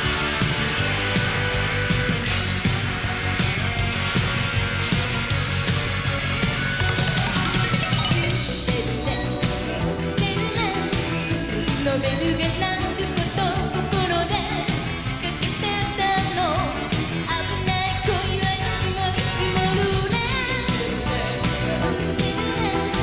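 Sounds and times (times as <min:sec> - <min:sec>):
pop band with drums guitar keyboards: 0:00.0 - 0:23.0
woman singing lead melody: 0:08.1 - 0:23.0
backing vocals: 0:17.2 - 0:23.0.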